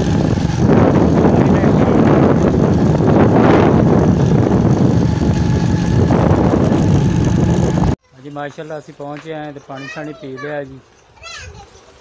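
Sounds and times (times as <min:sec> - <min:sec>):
small motorcycle engine running: 0:00.0 - 0:08.0
wind rushing over microphone: 0:00.0 - 0:08.0.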